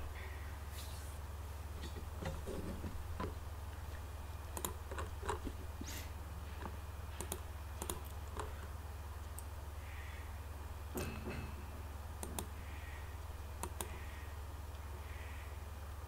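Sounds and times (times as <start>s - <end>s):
low electrical hum: 0.0s - 16.0s
computer mouse clicks: 4.5s - 5.4s, 6.6s - 8.6s, 12.2s - 12.5s, 13.6s - 14.0s.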